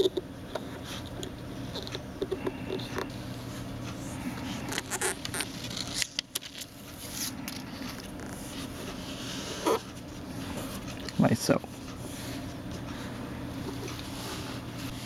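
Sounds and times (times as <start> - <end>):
low steady hum: 0.0 - 15.0
plastic film clicks and rustles: 4.7 - 8.3.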